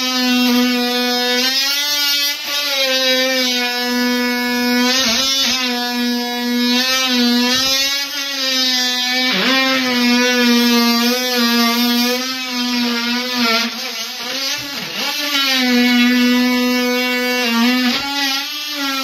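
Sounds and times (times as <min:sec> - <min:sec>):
oscillating multi-tool whining: 0:00.0 - 0:19.0.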